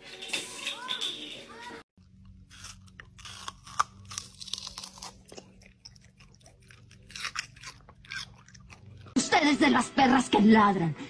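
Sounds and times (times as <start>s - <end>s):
dog chewing watermelon: 3.8s - 9.2s.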